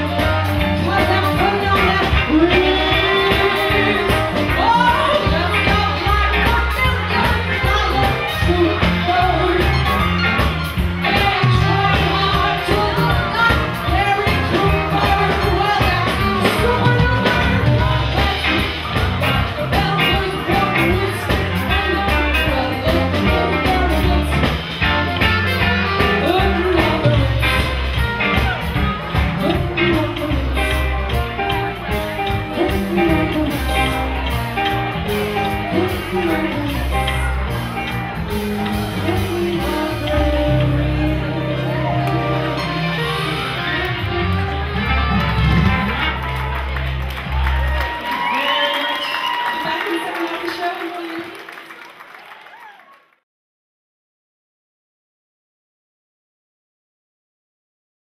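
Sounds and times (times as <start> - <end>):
woman singing into a microphone: 0.0 - 10.0, 11.0 - 18.8, 19.6 - 24.5, 26.0 - 27.8, 29.4 - 30.9, 32.3 - 34.1, 35.4 - 37.3, 38.9 - 43.0
drum kit beat: 0.0 - 48.3
bass: 0.0 - 50.3.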